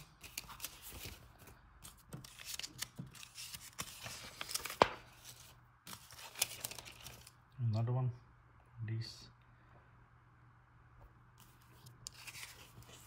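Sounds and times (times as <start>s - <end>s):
paper and plastic sheet rustling: 0.0s - 7.4s.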